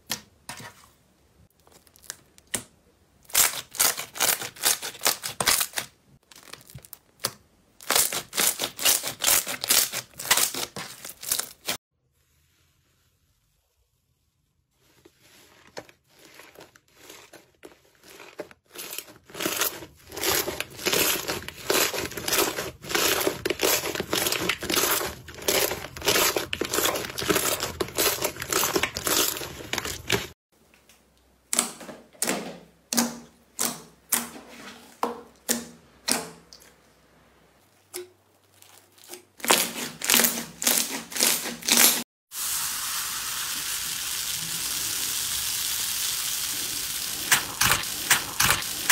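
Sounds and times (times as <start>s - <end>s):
slime squelching: 14.8s - 30.4s, 37.5s - 42.0s.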